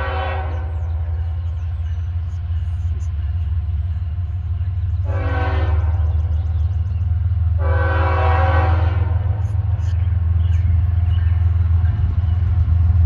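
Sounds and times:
locomotive air horn blasts: 0.0 - 1.0, 5.0 - 6.2, 7.5 - 9.4
low locomotive rumble: 0.0 - 13.0.

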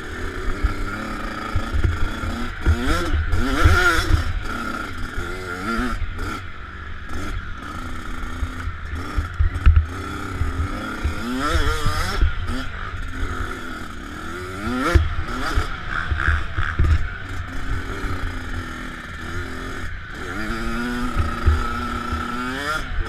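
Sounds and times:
dirt bike engine revving: 0.0 - 23.0
thumps over rough ground: 16.5 - 17.2.

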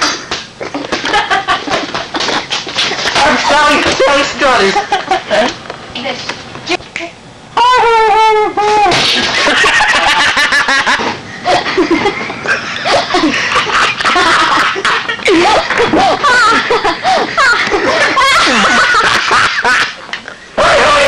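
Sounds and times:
people laughing and giggling: 0.6 - 3.7, 4.4 - 5.6, 9.2 - 21.0.

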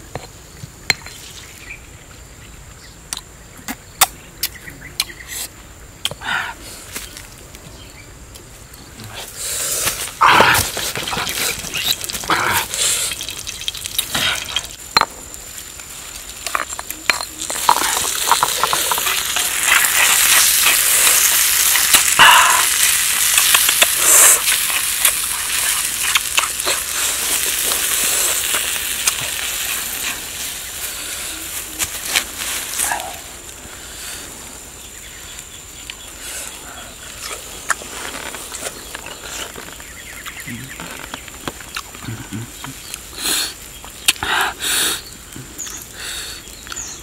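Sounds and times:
food stirred on clay plate: 16.3 - 30.1.

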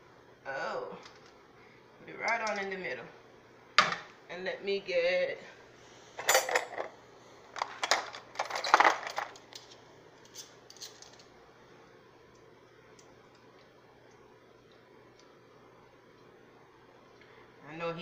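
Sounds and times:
metal utensils clinking on cookware: 6.2 - 6.9.

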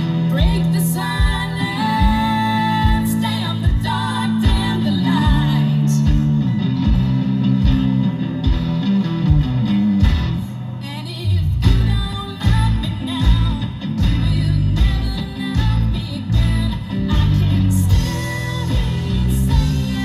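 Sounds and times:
woman singing: 0.0 - 6.4, 10.8 - 20.0
rock band playing: 0.0 - 20.0.

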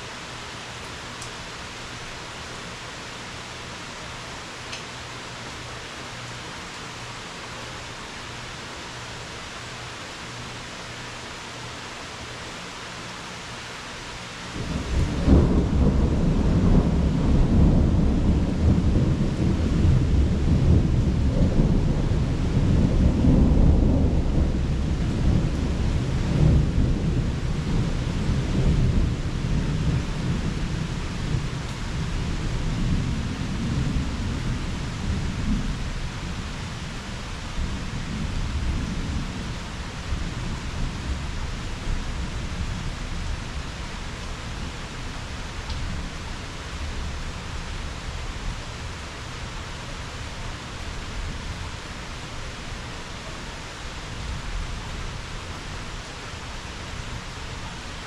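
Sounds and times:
steady rain hiss: 0.0 - 58.0
deep thunder rumbling: 14.6 - 45.0.

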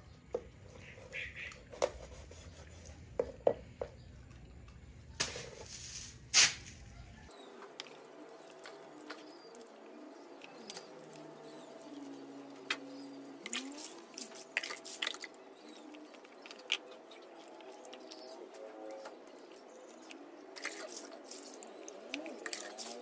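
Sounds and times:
wet clicks and squelches: 7.5 - 11.5, 12.6 - 23.0
water splashing: 13.3 - 18.6.

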